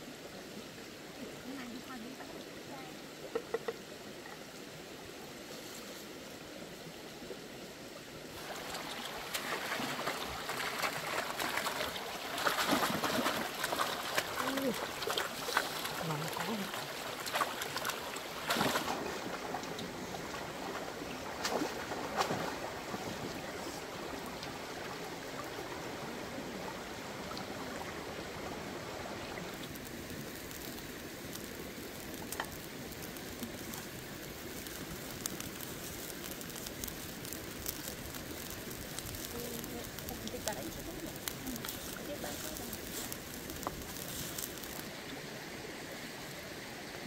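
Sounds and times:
stream running over rocks: 0:00.0 - 0:47.0
splashes in water: 0:08.4 - 0:23.8.

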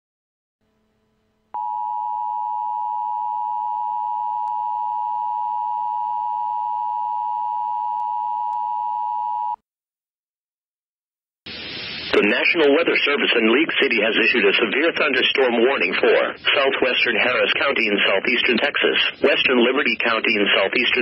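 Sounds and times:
loud high alarm tone: 0:01.6 - 0:09.6.

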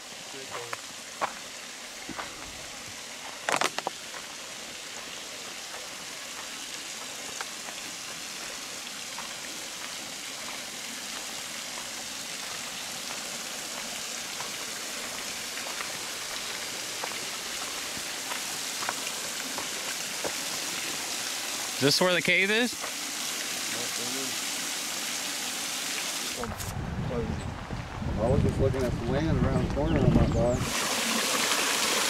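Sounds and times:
waterfall rushing over rock: 0:00.0 - 0:26.5, 0:30.6 - 0:32.0.

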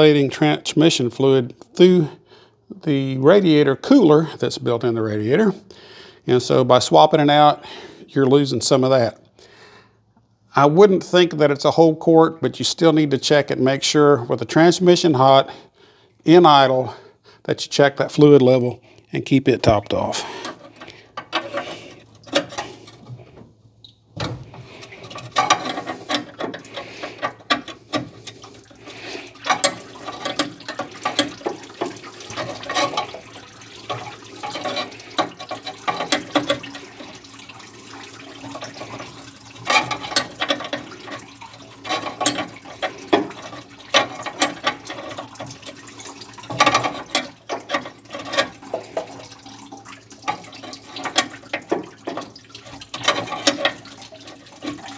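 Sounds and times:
wrench clicking and scraping metal: 0:20.4 - 0:23.0, 0:24.8 - 0:28.4, 0:29.4 - 0:33.2, 0:39.6 - 0:41.2, 0:41.8 - 0:45.6, 0:46.5 - 0:49.1, 0:52.2 - 0:53.8.

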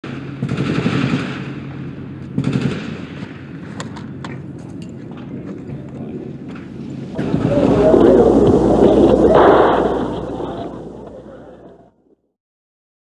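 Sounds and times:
gunfire bursts: 0:00.2 - 0:01.7, 0:02.4 - 0:03.2, 0:07.2 - 0:11.5
film soundtrack hum and hiss: 0:01.3 - 0:11.8.

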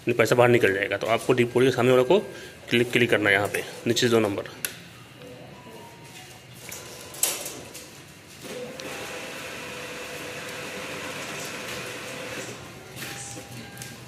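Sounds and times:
banknote mechanism whirring: 0:08.5 - 0:12.9.

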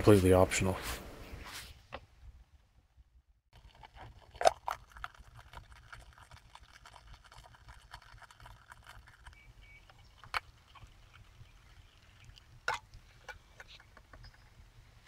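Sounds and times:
water crackling as it heats: 0:03.6 - 0:13.9.

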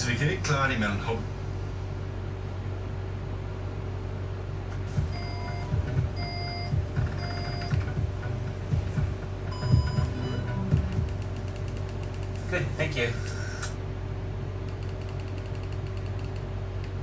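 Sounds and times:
steady low hum: 0:00.0 - 0:17.0
soft low thumps: 0:04.8 - 0:11.4
short electronic beeps: 0:05.0 - 0:07.8, 0:09.5 - 0:10.7.

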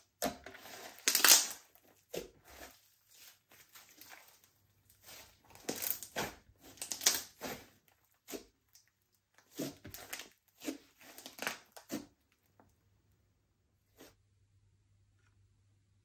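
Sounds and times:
slime squishing by hand: 0:00.0 - 0:12.6.

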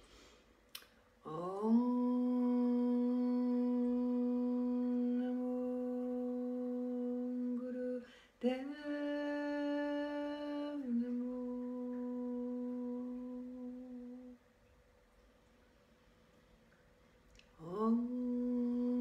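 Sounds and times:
woman chanting in hummed tones: 0:01.2 - 0:14.5, 0:17.5 - 0:19.0.

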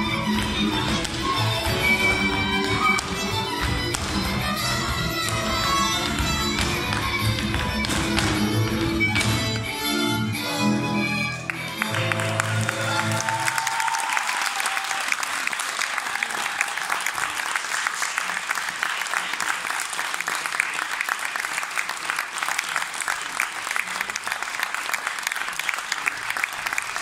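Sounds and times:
audience applauding: 0:11.4 - 0:27.0.

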